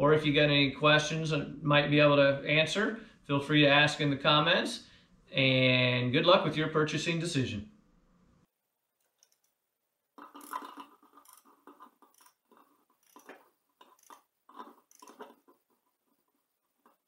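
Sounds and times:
ratchet wrench clicking: 10.2 - 12.4, 13.0 - 14.2, 14.9 - 15.3.

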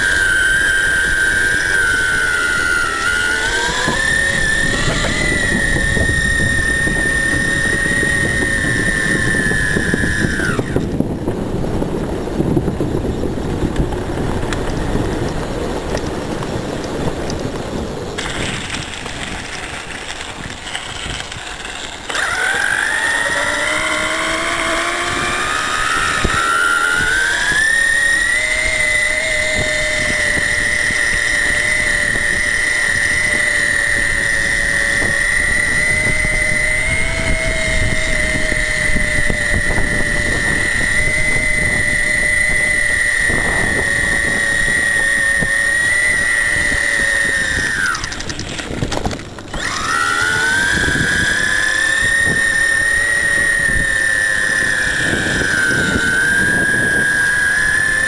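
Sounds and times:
electric motor whining: 0.0 - 58.0
wheels rolling: 0.0 - 58.0
wind: 0.0 - 58.0.

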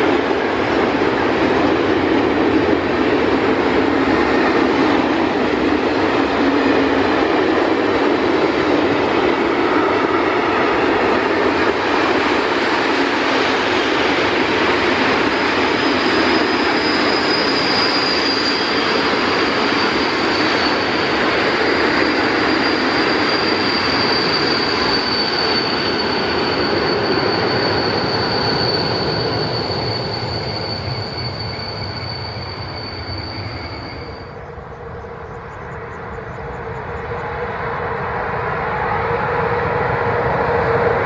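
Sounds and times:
train approaching: 0.0 - 41.0
train wheels rumbling: 0.0 - 41.0
high-pitched wheel squeal: 15.6 - 34.5.

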